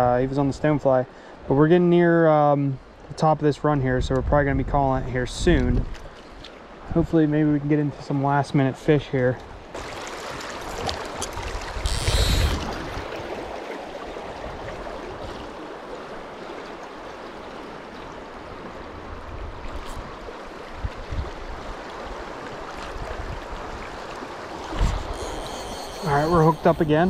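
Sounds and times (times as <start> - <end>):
stream rushing over rocks: 9.7 - 19.2
rustle on microphone: 10.3 - 13.1.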